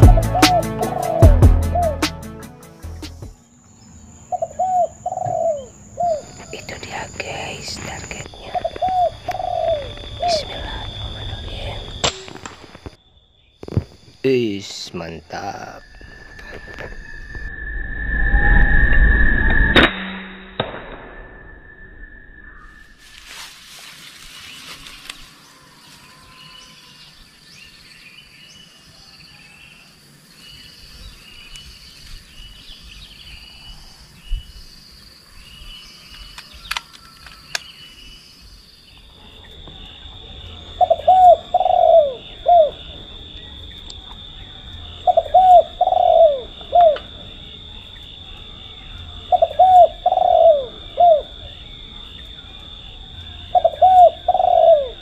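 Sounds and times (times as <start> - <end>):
doves cooing: 0.0 - 2.0, 4.2 - 12.9, 39.1 - 55.0
small birds chirping: 3.3 - 16.9, 24.2 - 55.0
high-pitched drone: 15.3 - 23.0.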